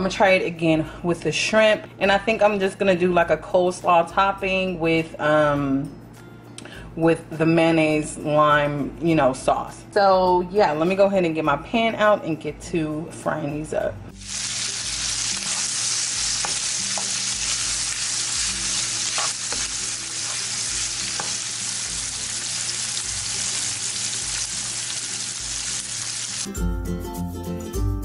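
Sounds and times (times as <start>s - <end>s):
music: 0.0s - 28.0s
shrimp sizzling in oil: 14.2s - 26.5s
spatula tapping a pan: 16.4s - 17.2s, 21.1s - 21.5s.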